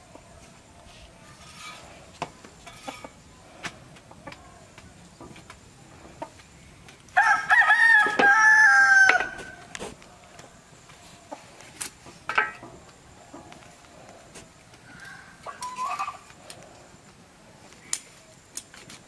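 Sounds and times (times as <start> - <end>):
rooster crowing: 7.2 - 9.6, 14.8 - 16.2.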